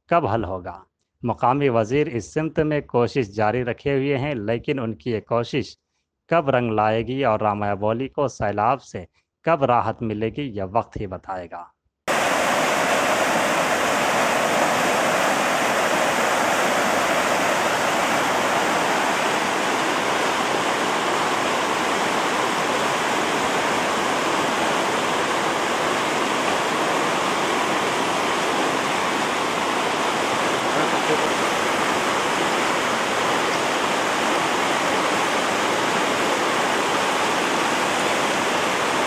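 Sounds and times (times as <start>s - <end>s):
floodwater rushing: 12.1s - 39.0s.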